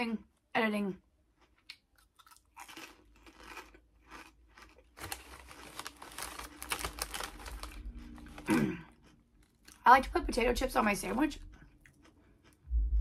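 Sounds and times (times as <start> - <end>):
crunching on a potato chip: 1.3 - 9.9
chip bag crinkling: 2.0 - 9.8.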